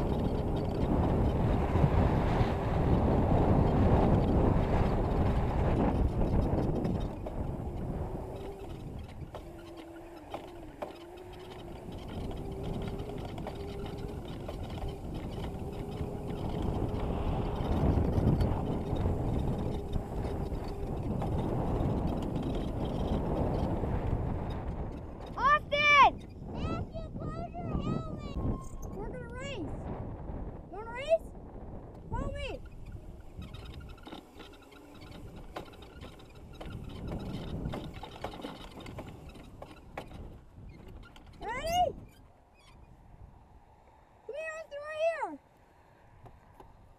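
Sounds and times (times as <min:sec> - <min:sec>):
electric motor whining: 0:00.0 - 0:25.3, 0:32.4 - 0:40.2
wind and ground rumble: 0:00.0 - 0:46.9
bike knocks and rattles: 0:03.4 - 0:25.4, 0:32.7 - 0:41.5.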